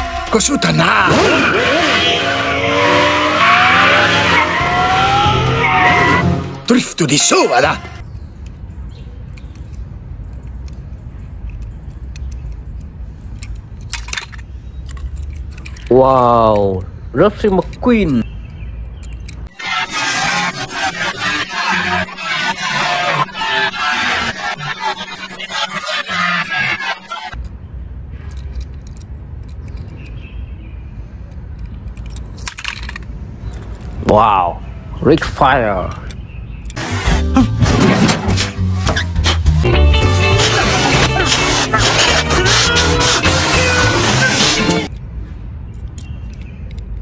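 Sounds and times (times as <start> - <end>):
toy car clicks: 9.2 - 17.9, 18.8 - 19.6, 28.2 - 30.3, 31.3 - 34.0, 45.7 - 47.0.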